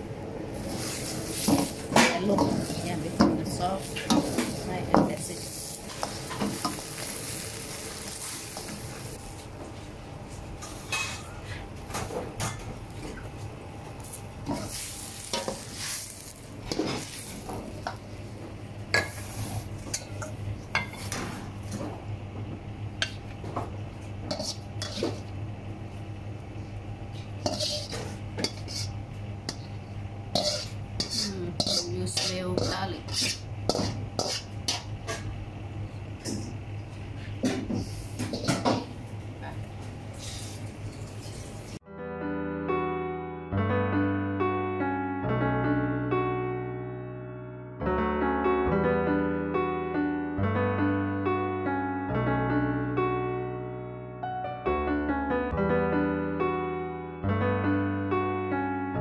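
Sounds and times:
steady low hum: 0.0s - 41.8s
food sizzling: 0.5s - 9.4s, 14.0s - 21.7s, 24.0s - 25.3s, 27.2s - 35.4s, 40.0s - 41.8s
metal ladle scraping wok: 19.0s - 20.2s, 24.3s - 25.2s, 27.4s - 29.6s, 30.3s - 34.9s.

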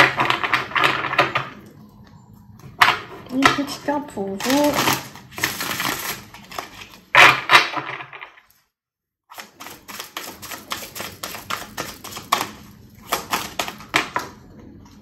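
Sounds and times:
cards being shuffled: 9.3s - 14.2s.

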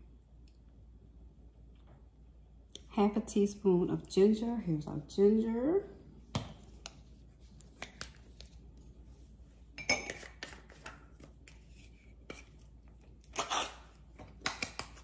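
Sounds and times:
spoon clinking glass bowl: 9.8s - 10.3s.

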